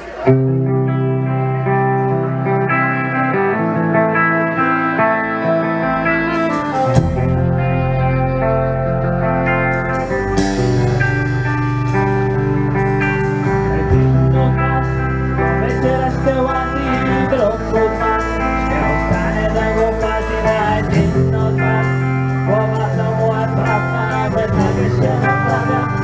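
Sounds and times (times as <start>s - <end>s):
bass guitar: 0.0s - 26.0s
electric guitar: 0.0s - 26.0s
person singing: 4.1s - 26.0s
drum kit beat: 9.7s - 26.0s.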